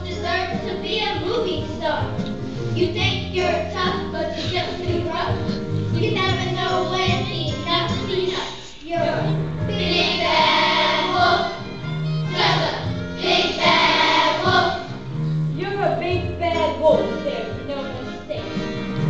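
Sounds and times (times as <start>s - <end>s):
musical backing: 0.0s - 19.0s
children singing together: 9.2s - 15.0s.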